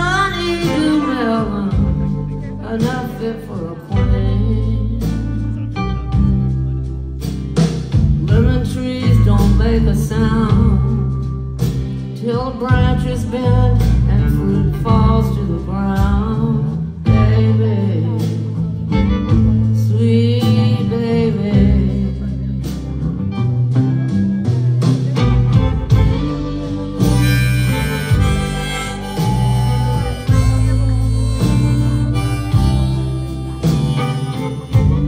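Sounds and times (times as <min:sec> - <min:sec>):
live country blues band: 0:00.0 - 0:35.0.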